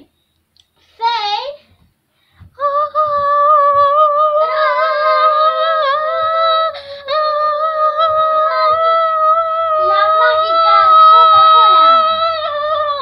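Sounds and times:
girl singing high note: 2.6s - 13.0s
girl breathing in: 6.7s - 7.1s.

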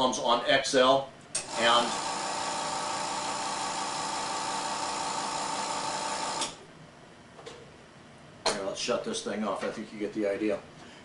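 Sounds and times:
electric pump running: 1.4s - 6.6s.

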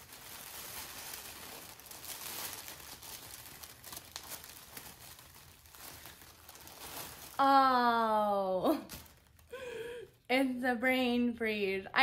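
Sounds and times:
packaging crinkling and rustling: 0.0s - 7.8s, 8.6s - 9.9s.

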